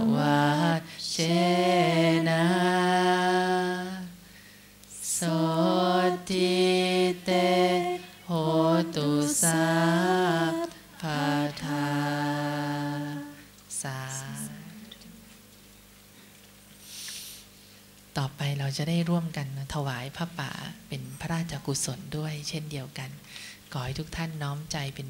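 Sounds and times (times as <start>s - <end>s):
chanting: 0.0s - 4.2s, 4.9s - 15.2s.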